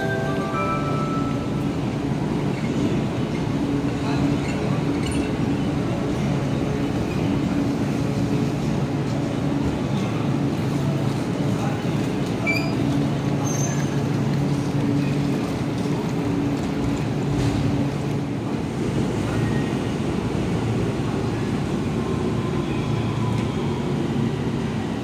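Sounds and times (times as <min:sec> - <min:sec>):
electric train rolling to a stop: 0:00.0 - 0:07.6.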